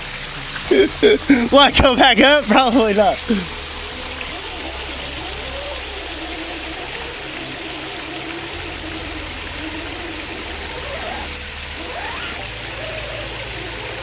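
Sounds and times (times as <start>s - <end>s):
waterfall running over rock: 0.0s - 14.0s
electric motor whining: 3.2s - 14.0s.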